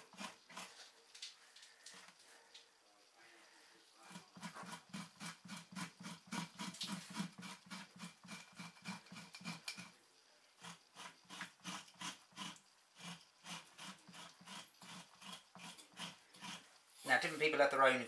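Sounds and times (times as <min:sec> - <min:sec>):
knife scraping hide: 0:04.0 - 0:09.9, 0:10.6 - 0:17.5.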